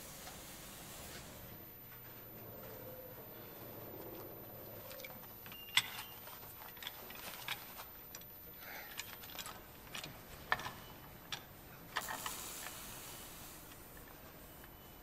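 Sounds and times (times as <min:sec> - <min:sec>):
hissing rattle: 0:00.0 - 0:01.6, 0:12.0 - 0:14.1.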